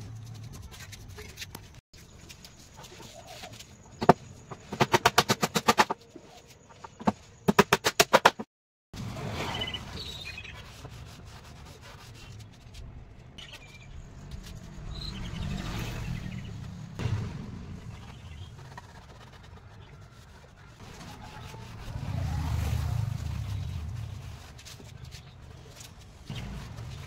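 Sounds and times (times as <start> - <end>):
bird chirps: 9.4 - 10.8, 13.4 - 16.7, 17.8 - 19.1.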